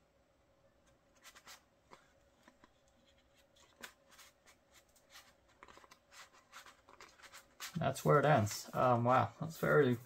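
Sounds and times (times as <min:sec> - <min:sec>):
book pages rustling: 0:01.1 - 0:09.0.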